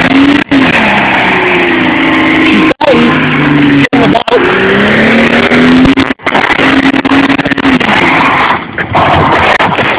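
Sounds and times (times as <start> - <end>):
car engine revving high: 0.0 - 9.8
tyres screeching on pavement: 0.0 - 9.9.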